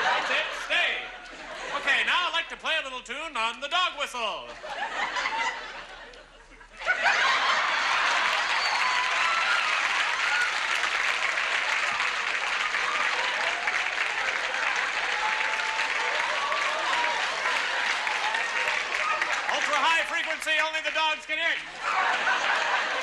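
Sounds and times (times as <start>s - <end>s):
studio audience applauding: 7.0s - 23.0s.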